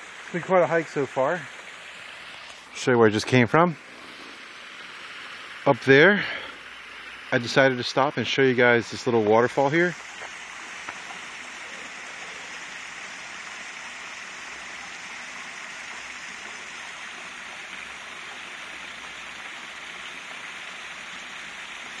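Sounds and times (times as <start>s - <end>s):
water splashing over rock ledge: 7.3s - 22.0s.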